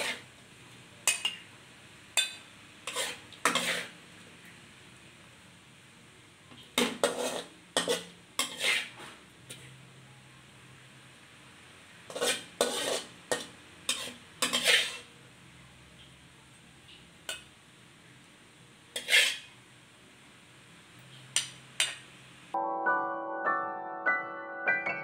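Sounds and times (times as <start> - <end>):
metal utensil scraping a wok: 0.0 - 0.3, 2.2 - 4.0, 6.7 - 9.8, 12.1 - 15.1, 18.9 - 19.5, 21.3 - 22.0.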